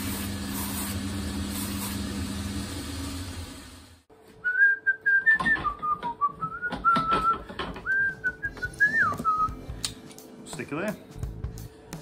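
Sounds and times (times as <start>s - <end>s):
person whistling a tune: 4.4s - 9.6s
knocks and clicks of handling: 5.3s - 10.1s.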